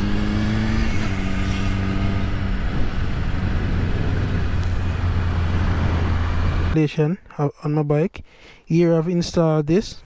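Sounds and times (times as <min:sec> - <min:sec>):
motorcycle engine running: 0:00.0 - 0:06.8
wind noise on microphone: 0:00.1 - 0:06.8.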